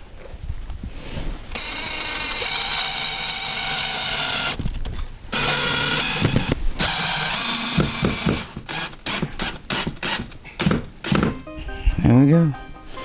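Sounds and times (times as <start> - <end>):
cordless drill driving screw: 1.5 - 11.4.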